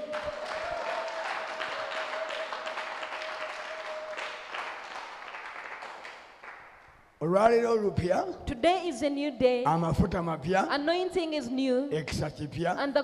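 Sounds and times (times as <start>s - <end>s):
congregation applauding: 0.0s - 7.0s.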